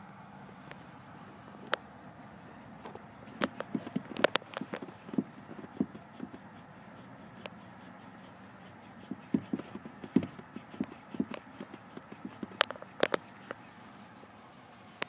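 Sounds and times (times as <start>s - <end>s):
shoe pumping accelerator pedal: 0.0s - 15.0s
sharp pedal clicks: 2.8s - 13.6s.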